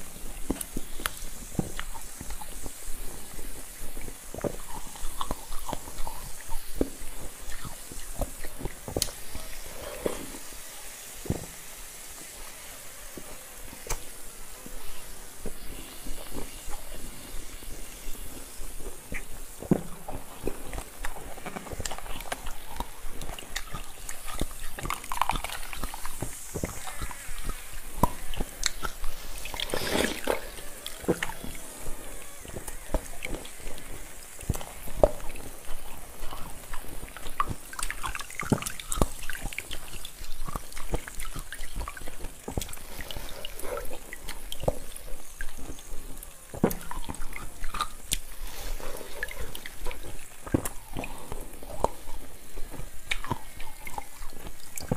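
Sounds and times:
wet slurps: 0.0 - 10.6, 12.2 - 54.9
ice crackling as bitten: 19.0 - 54.9.

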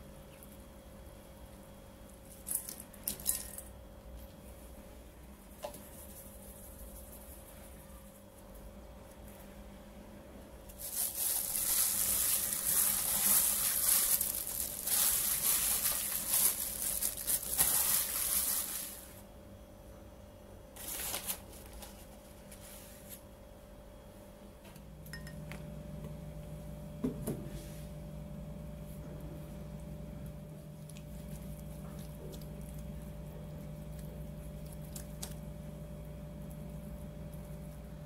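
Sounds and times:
faint steady hum: 0.0 - 38.0
wet mixing of food in bowl: 30.3 - 35.8.

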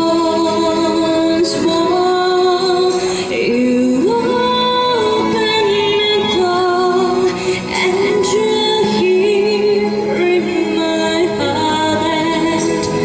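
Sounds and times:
woman singing into microphone: 0.0 - 13.0.

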